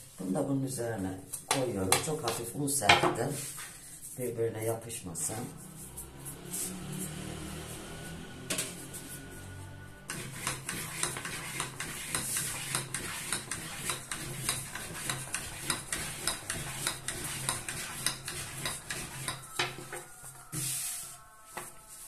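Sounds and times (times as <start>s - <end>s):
rolling pin clicking on counter: 10.4s - 19.8s.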